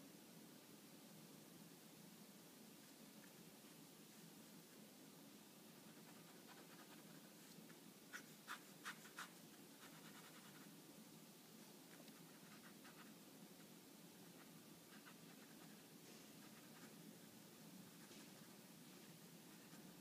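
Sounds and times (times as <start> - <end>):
pen scratching on paper: 5.8 - 7.4, 8.1 - 10.7, 12.0 - 17.0.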